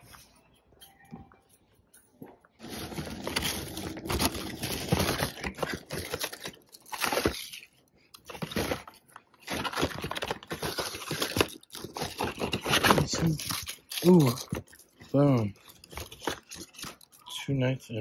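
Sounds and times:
plastic boxes clattering: 2.6 - 7.4
packing paper crinkling: 2.6 - 17.3.

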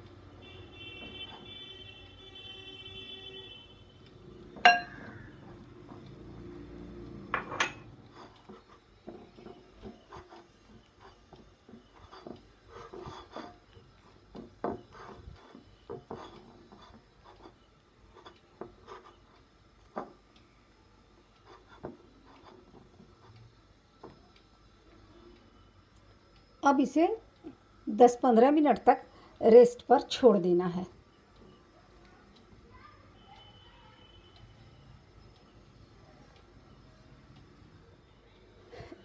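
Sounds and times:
steel bowl ringing when knocked: 4.6 - 5.2.

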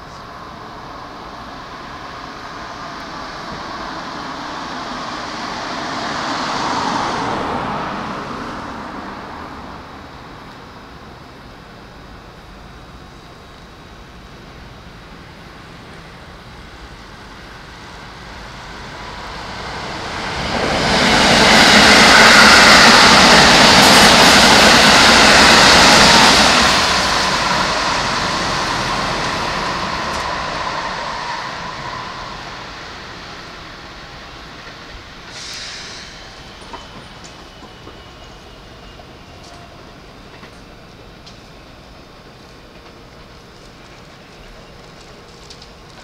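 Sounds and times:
electric train passing: 0.0 - 46.0
short high hiss: 35.3 - 36.5.

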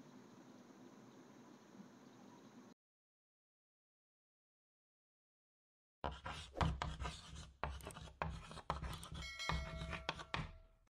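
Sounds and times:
scratching and rubbing: 6.1 - 10.5.

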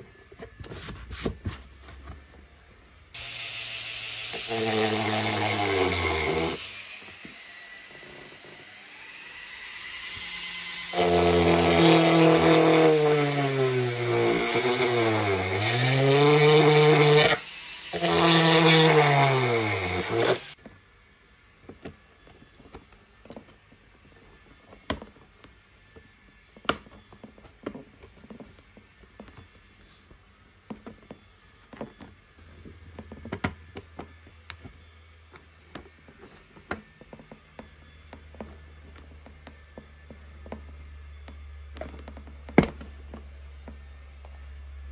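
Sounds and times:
power tool motor running: 3.2 - 20.6.

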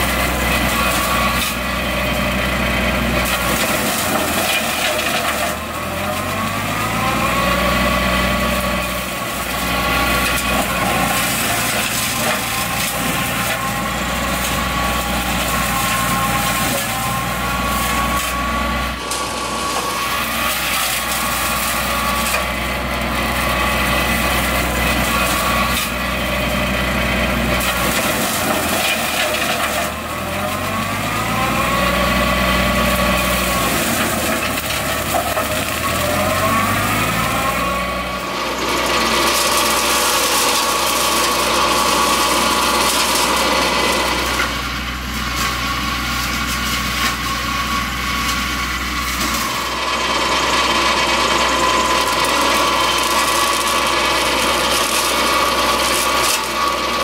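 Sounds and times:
tractor engine under load: 0.0 - 57.0
brush mulcher chewing brush: 8.5 - 26.6.

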